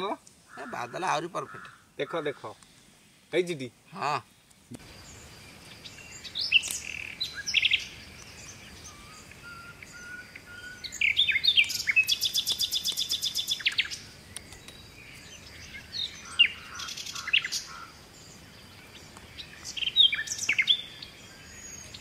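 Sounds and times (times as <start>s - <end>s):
small birds chirping: 0.0s - 22.0s
fast bird trill: 15.3s - 18.0s.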